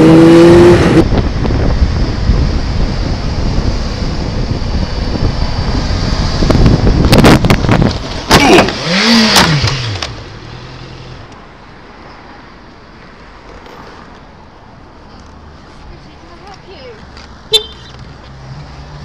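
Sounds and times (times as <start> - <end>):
motorcycle riding noise: 0.0 - 11.4
motorcycle crash clattering and scraping: 8.1 - 10.2.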